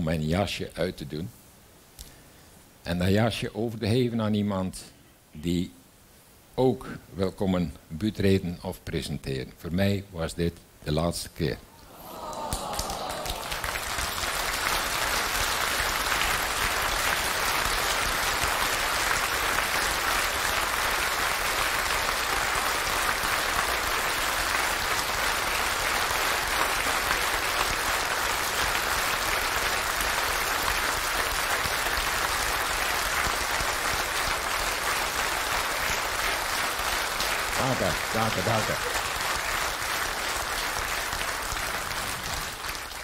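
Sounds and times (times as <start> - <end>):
large audience applauding: 11.9 - 43.0.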